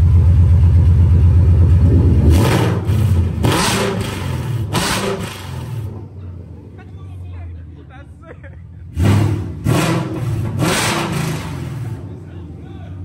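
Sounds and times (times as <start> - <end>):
car engine revving: 0.0 - 6.8, 8.8 - 13.0
sharp exhaust bursts: 1.8 - 6.0, 8.9 - 12.2.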